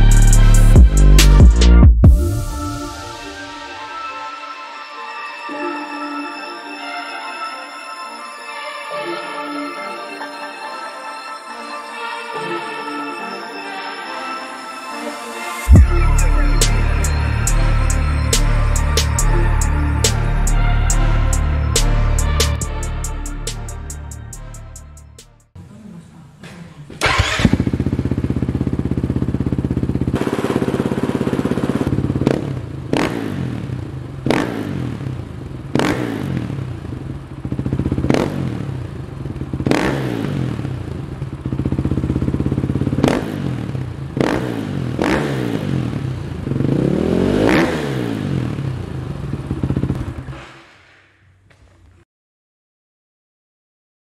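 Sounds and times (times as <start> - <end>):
motorcycle engine revving: 0.0 - 3.0, 15.7 - 25.8, 26.8 - 51.9.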